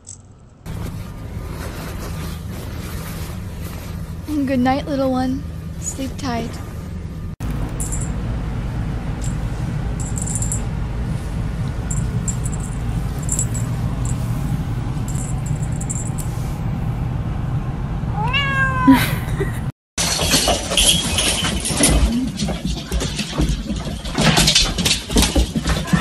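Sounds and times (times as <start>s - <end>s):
steady low hum: 0.0s - 19.7s
cat meowing: 18.2s - 19.0s.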